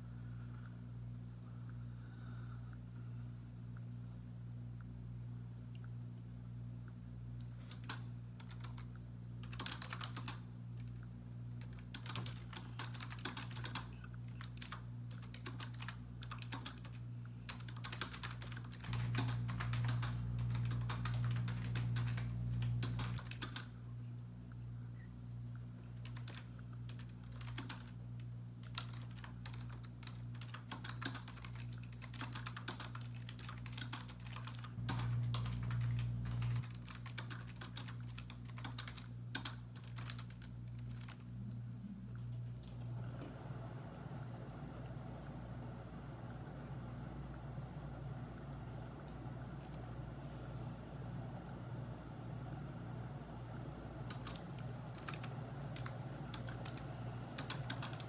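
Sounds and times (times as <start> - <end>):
steady low hum: 0.0 - 58.0
typing on computer keyboard: 7.6 - 11.0, 11.6 - 23.7, 26.0 - 28.0, 28.6 - 41.2, 54.1 - 56.8, 57.4 - 58.0.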